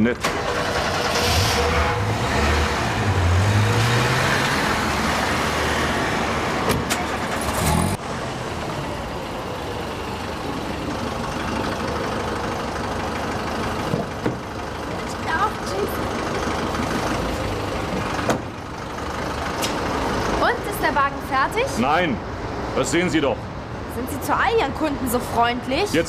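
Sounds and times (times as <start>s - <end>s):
car engine accelerating: 0.2s - 12.1s.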